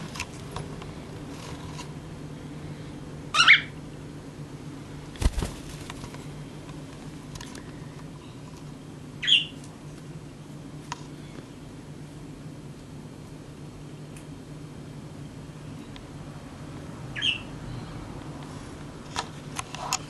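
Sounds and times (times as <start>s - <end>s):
cockatiel high calls: 3.3s - 3.8s, 9.2s - 9.6s, 17.2s - 17.5s.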